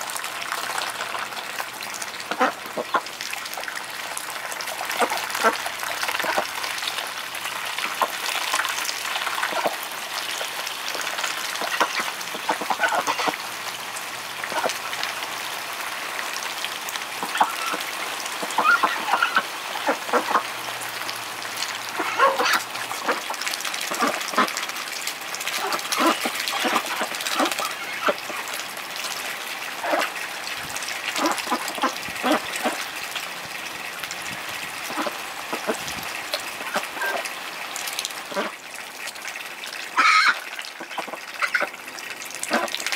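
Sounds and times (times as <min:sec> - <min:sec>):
ducks splashing in a puddle: 0:00.0 - 0:42.9
water running from a hose: 0:00.0 - 0:42.9
duck quacks: 0:02.3 - 0:03.1, 0:11.6 - 0:13.4, 0:17.2 - 0:17.8, 0:18.4 - 0:20.5, 0:22.0 - 0:23.3, 0:25.6 - 0:28.4, 0:31.1 - 0:32.8, 0:34.9 - 0:35.8, 0:38.3 - 0:38.6, 0:40.0 - 0:41.7, 0:42.5 - 0:42.8.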